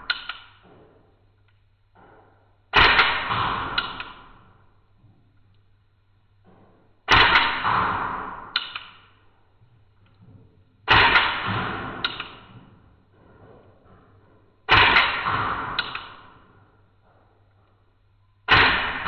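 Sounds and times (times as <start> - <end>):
sharp click: 0.0 - 0.6, 2.8 - 4.3, 8.5 - 9.1, 10.9 - 12.5, 14.7 - 16.2
slowed pistol shot bang: 14.7 - 16.3, 18.5 - 19.0.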